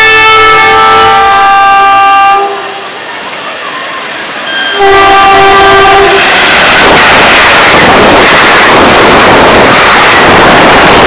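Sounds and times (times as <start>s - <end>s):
locomotive horn blasts: 0.0s - 2.8s, 4.8s - 6.3s.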